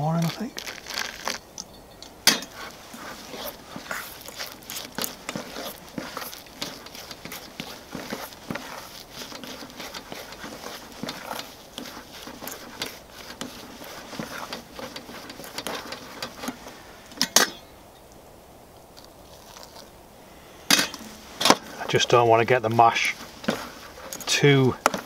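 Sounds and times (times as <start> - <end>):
fork scraping a metal pan: 2.3 - 17.7, 20.4 - 22.2.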